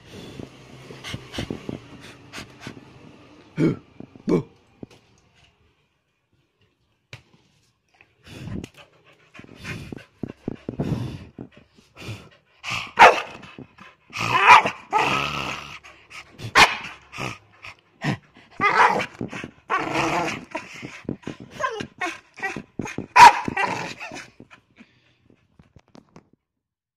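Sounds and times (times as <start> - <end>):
dog barking and yowling: 12.9 - 13.4, 14.2 - 15.3, 16.4 - 17.5, 18.6 - 20.7, 21.6 - 24.2.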